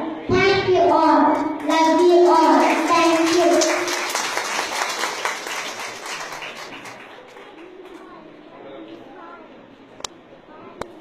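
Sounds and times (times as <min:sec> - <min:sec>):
audience applause: 0:01.7 - 0:08.1.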